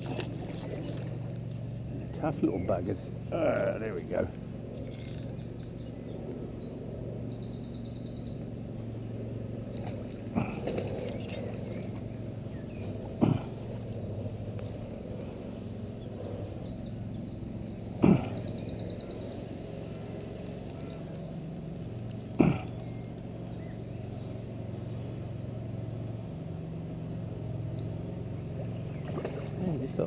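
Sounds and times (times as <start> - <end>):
low hum: 0.0 - 30.0.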